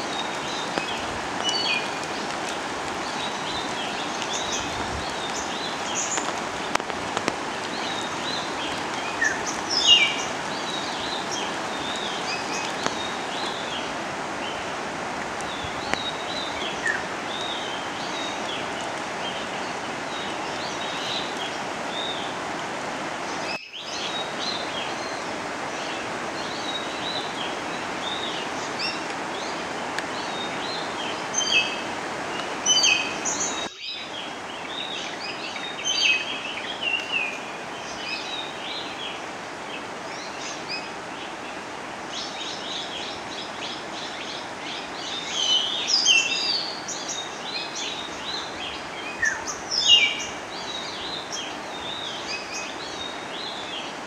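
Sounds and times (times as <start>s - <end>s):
small birds chirping: 0.0s - 22.5s
rushing water: 0.0s - 54.0s.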